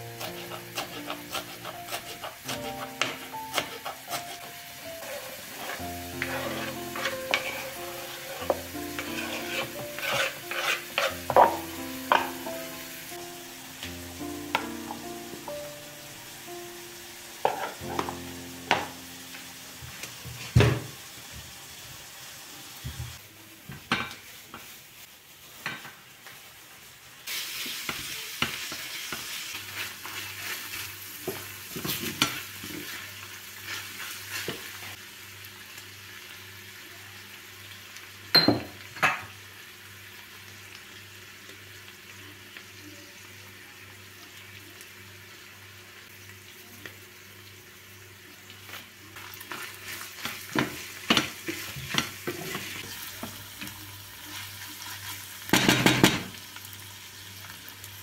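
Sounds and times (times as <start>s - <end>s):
wooden spoon scraping a pan: 0.0s - 12.4s, 17.4s - 18.2s, 28.6s - 34.9s, 49.4s - 55.3s
meat sizzling in a pan: 0.0s - 58.0s.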